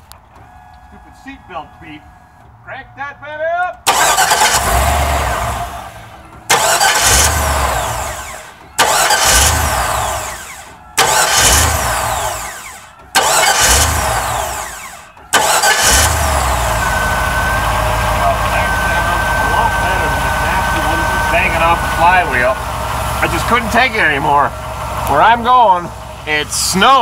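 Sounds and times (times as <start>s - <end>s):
engine running steadily: 3.7s - 27.0s
starter cranking engine: 3.8s - 27.0s
thin steady whine: 16.6s - 22.6s.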